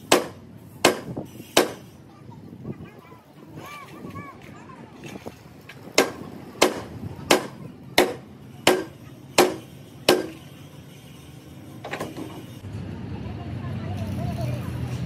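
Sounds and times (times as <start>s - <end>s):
hammer striking metal: 0.0s - 1.8s, 6.0s - 10.5s.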